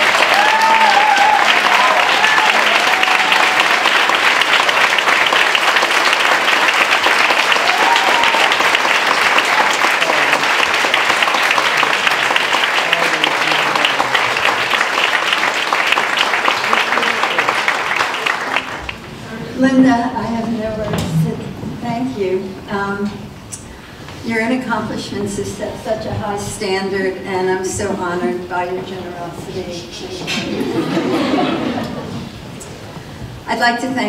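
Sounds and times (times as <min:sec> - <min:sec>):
audience applauding: 0:00.0 - 0:19.2.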